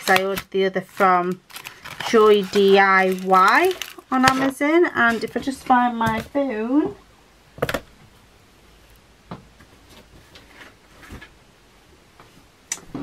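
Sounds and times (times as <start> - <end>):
plastic bag rustling: 0.0 - 6.3.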